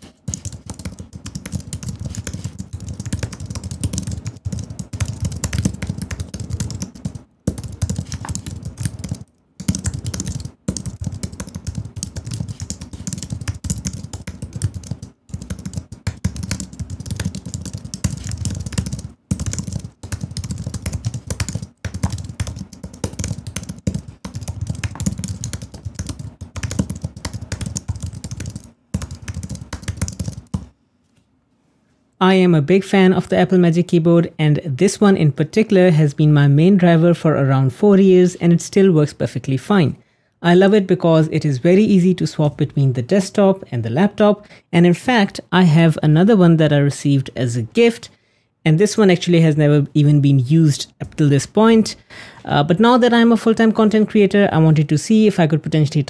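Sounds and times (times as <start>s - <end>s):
fast typing on keyboard: 0.2s - 30.7s.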